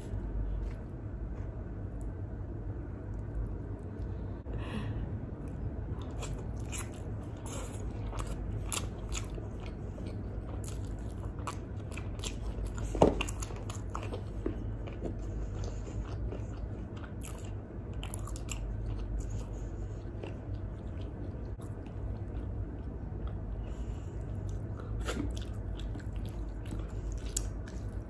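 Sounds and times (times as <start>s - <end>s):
chewing and biting food: 5.4s - 28.0s.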